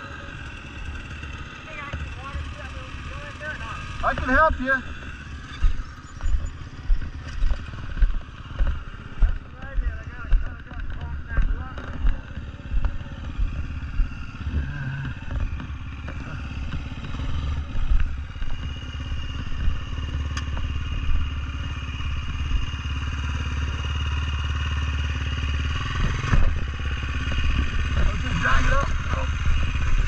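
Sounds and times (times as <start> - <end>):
dirt bike engine running: 0.0 - 30.0
knocks and clatter: 5.5 - 22.7.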